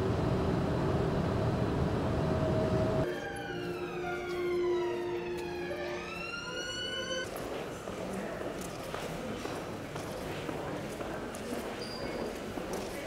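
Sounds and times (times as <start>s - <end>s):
siren wail: 2.8s - 7.2s.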